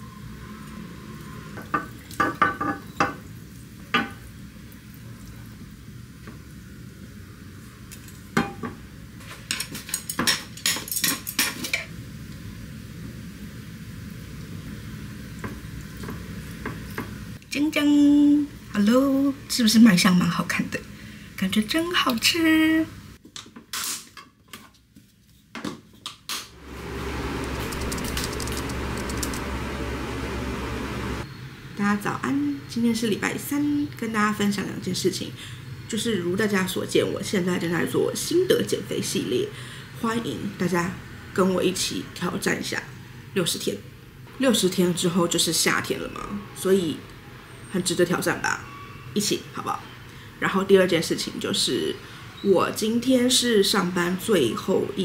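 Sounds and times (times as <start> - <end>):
ventilation unit humming: 26.5 - 32.6.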